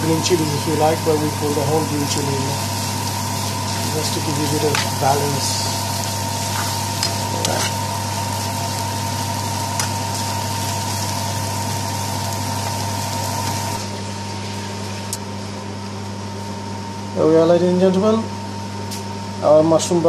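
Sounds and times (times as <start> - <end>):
mushrooms hissing in a pan: 0.0 - 15.1
constant hum: 0.0 - 20.0.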